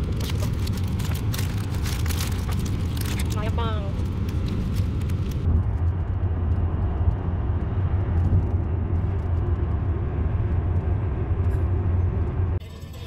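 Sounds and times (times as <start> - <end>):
car road noise rumble: 0.0 - 13.0.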